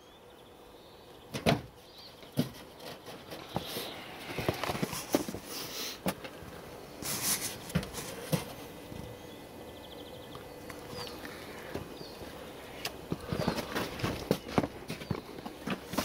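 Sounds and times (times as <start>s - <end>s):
footsteps: 2.4s - 9.1s, 10.7s - 16.0s.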